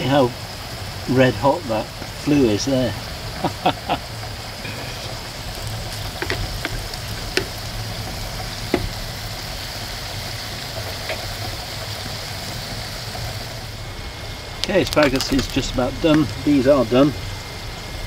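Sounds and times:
potatoes sizzling in fat: 0.0s - 18.0s
water boiling: 0.0s - 18.0s.

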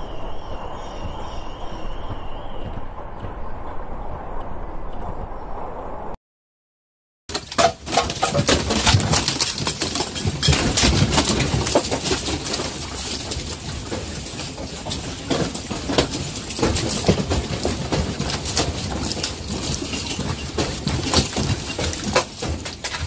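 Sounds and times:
earthquake low rumble: 0.0s - 6.2s
household objects rattling: 7.3s - 23.0s.

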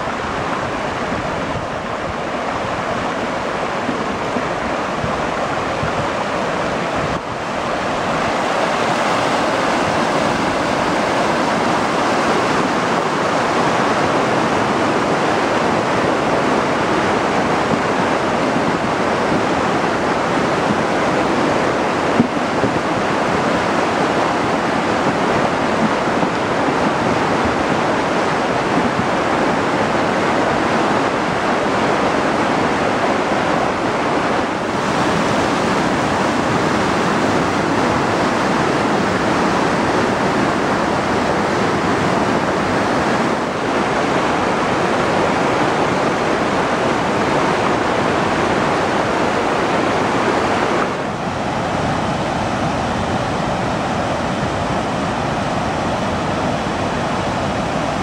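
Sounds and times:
flood water rushing over boulders: 0.0s - 58.0s.

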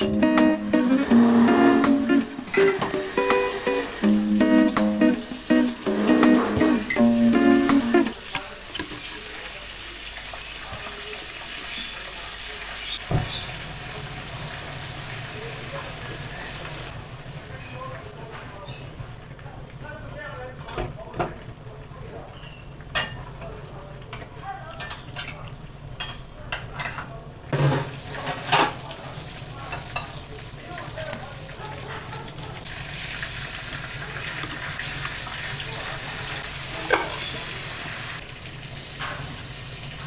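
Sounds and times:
acoustic guitar music: 0.0s - 8.2s
fish sizzling in hot oil: 8.1s - 18.1s, 27.8s - 31.6s, 32.6s - 40.0s
thump: 13.1s - 13.4s.

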